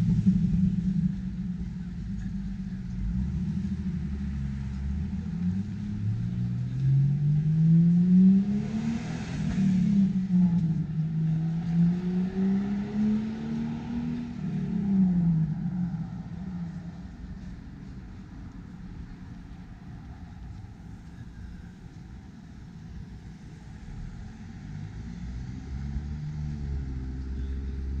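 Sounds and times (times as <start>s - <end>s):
car engine accelerating: 0.0s - 28.0s
tyre noise of passing car: 0.0s - 28.0s.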